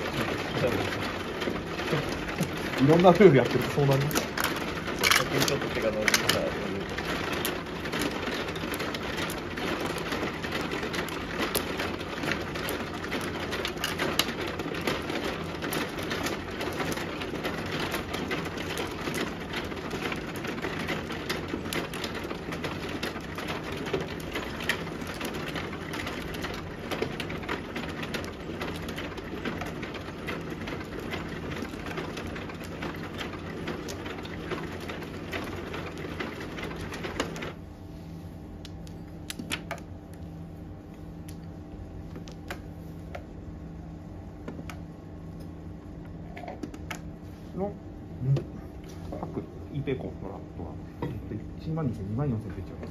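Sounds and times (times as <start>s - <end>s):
low steady hum: 0.0s - 52.9s
mahjong tiles clicking: 1.8s - 9.4s.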